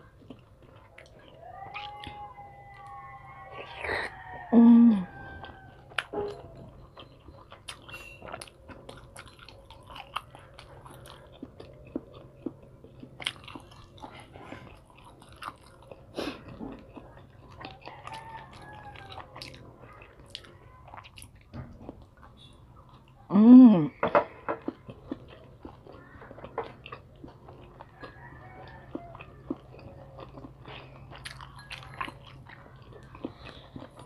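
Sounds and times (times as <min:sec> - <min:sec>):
chewing and mouth smacking: 0:00.0 - 0:23.3, 0:23.9 - 0:34.0.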